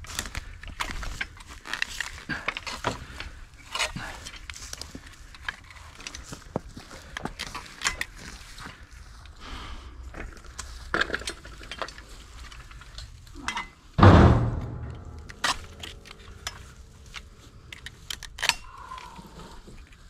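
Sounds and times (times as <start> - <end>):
ringing metal clank: 13.5 - 16.7.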